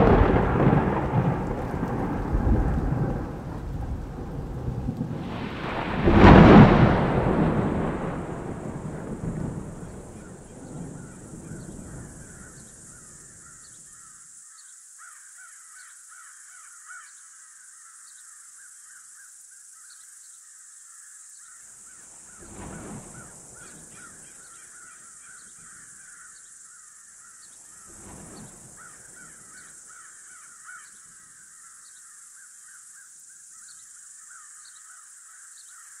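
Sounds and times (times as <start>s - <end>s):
thunder rumbling: 0.0s - 13.6s, 22.4s - 24.2s
insects calling: 0.0s - 36.0s.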